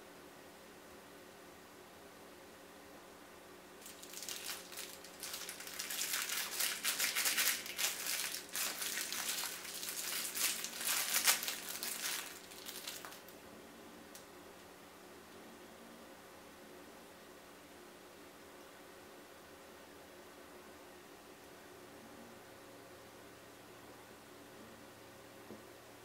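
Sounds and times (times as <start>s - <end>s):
plastic wrapper crinkling: 3.8s - 13.4s.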